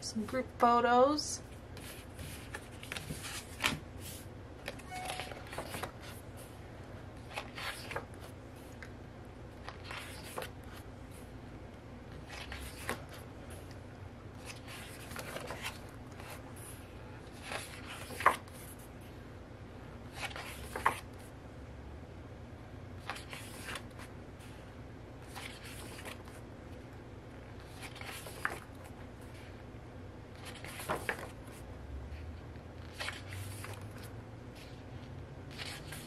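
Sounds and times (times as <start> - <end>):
paper cards rustling: 1.8 - 6.5, 7.2 - 9.0, 9.6 - 10.9, 12.1 - 13.8, 14.4 - 18.8, 20.1 - 21.2, 23.0 - 24.1, 25.2 - 26.4, 27.5 - 29.5, 30.3 - 31.6, 32.8 - 34.8, 35.5 - 36.0.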